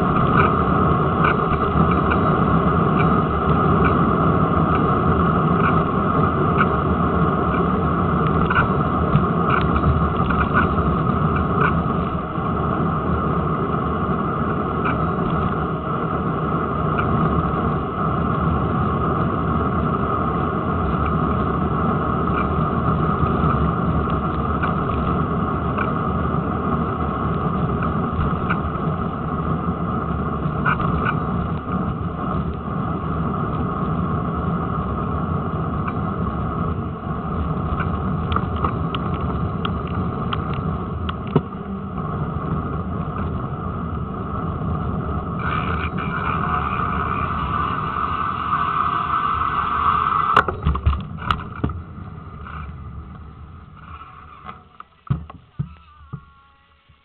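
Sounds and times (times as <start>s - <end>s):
bicycle clicks and rattles: 0.0s - 16.0s, 20.8s - 34.0s, 35.8s - 44.0s, 45.3s - 56.3s
wind noise: 0.0s - 56.3s
road vibration rumble: 0.0s - 57.0s.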